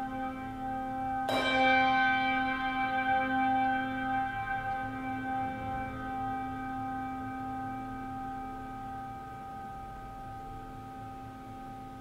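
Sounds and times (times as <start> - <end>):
struck metal bell ringing: 0.0 - 7.7.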